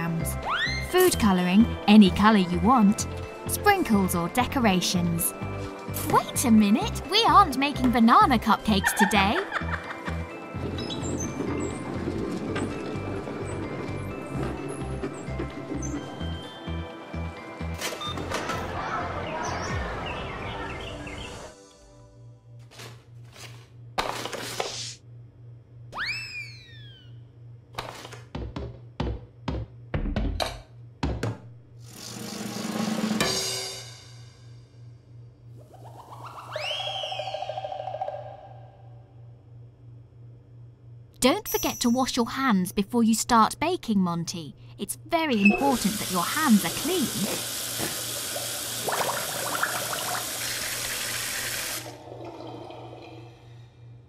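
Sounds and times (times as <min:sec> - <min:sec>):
tap water running into sink: 0:45.8 - 0:52.4.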